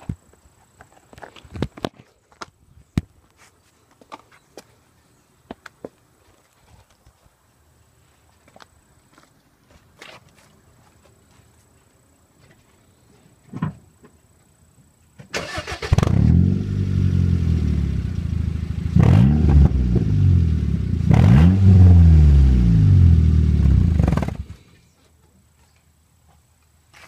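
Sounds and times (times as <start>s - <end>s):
car engine revving: 15.5s - 24.6s.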